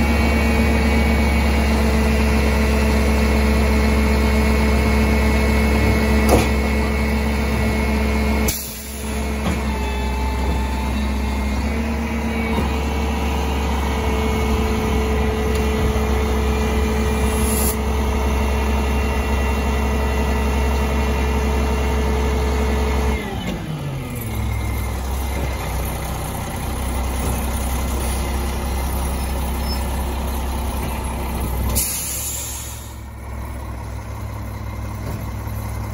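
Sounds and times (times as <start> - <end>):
diesel truck engine running: 0.0 - 35.9
short air hisses: 31.8 - 33.0.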